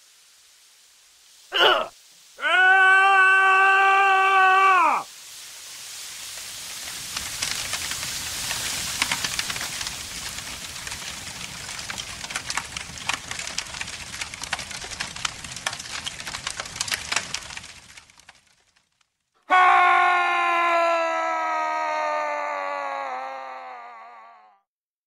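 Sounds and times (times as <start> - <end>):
food sizzling and crackling: 0.0 - 19.3.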